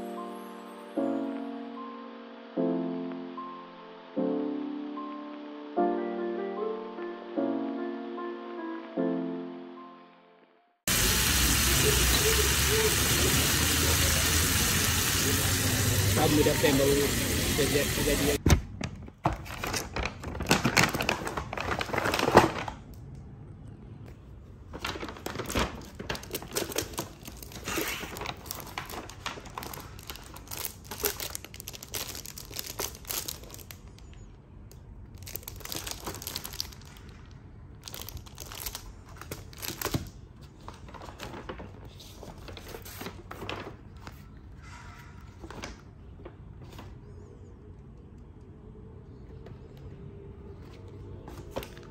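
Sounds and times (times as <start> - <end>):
paper rustling: 18.4 - 22.8, 24.6 - 33.8, 37.9 - 44.4, 50.6 - 51.9
paper bag crinkling: 18.8 - 22.9, 24.6 - 34.1, 35.2 - 44.3.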